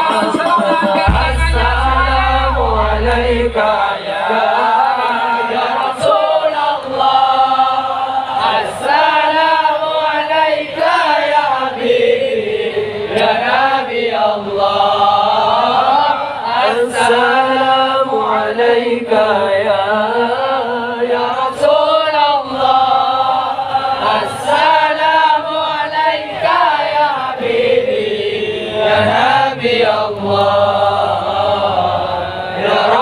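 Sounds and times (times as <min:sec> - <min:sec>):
men chanting through loudspeakers: 0:00.0 - 0:33.0
deep low tone: 0:01.0 - 0:04.0.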